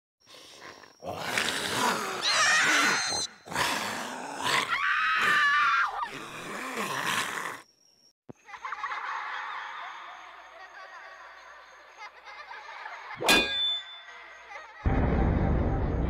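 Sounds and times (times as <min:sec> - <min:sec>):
monster roaring and screaming: 0:01.0 - 0:07.6.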